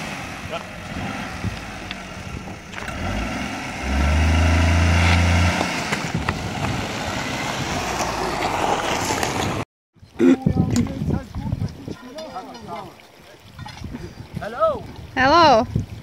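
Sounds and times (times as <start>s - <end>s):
car engine humming: 0.0s - 9.6s
stones clicking under tyres: 1.5s - 3.1s, 5.0s - 6.9s.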